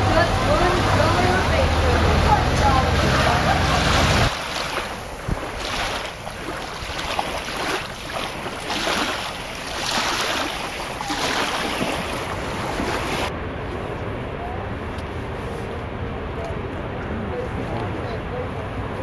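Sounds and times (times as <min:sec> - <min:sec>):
water lapping: 0:00.4 - 0:13.3.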